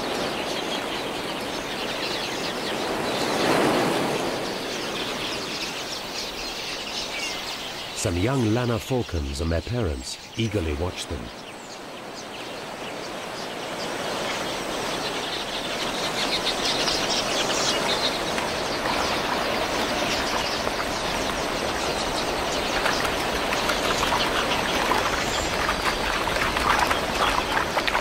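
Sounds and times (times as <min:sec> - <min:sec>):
flock of birds twittering: 0:00.0 - 0:28.0
wing noise: 0:07.4 - 0:28.0.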